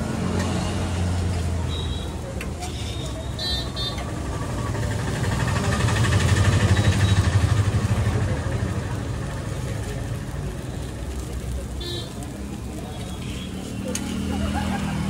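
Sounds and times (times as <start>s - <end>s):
passing vehicle engine rumble: 3.9s - 15.0s.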